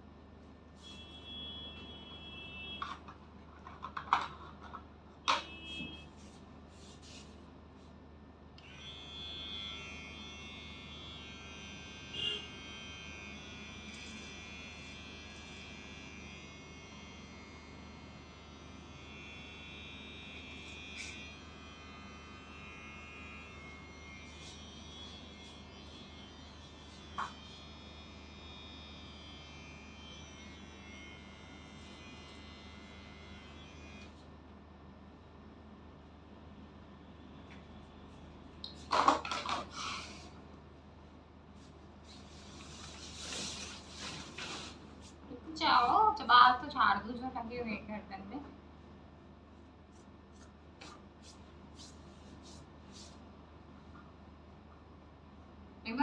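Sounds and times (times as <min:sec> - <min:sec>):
electric hair trimmer running: 0:08.6 - 0:34.2.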